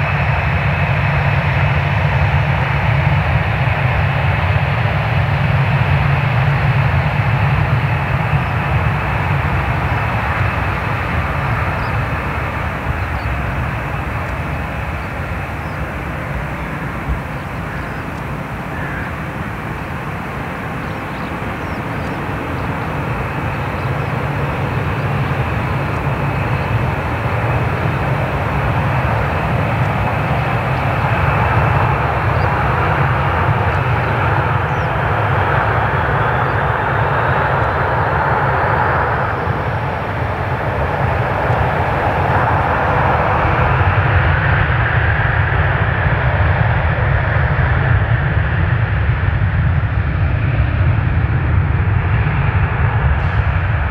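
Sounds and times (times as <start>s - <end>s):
jet engines roaring: 0.0s - 53.9s
rising engine whine: 7.3s - 46.8s.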